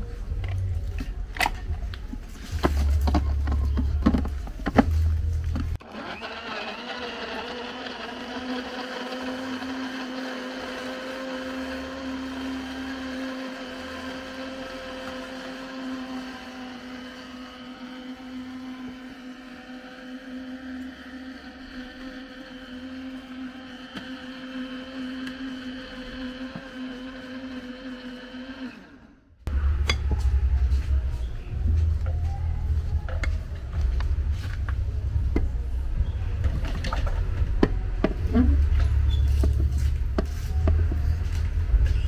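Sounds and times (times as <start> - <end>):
low rumble: 0.0 - 5.8, 29.5 - 42.0
blender running: 5.8 - 30.0.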